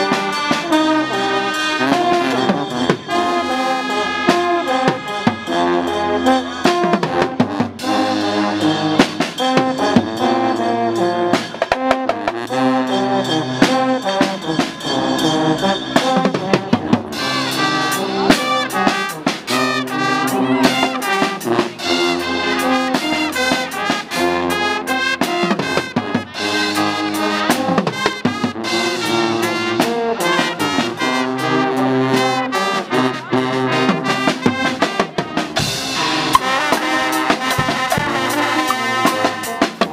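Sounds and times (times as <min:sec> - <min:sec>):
drum kit with cymbals: 0:00.0 - 0:31.2, 0:33.9 - 0:39.9
brass band playing: 0:00.0 - 0:39.9.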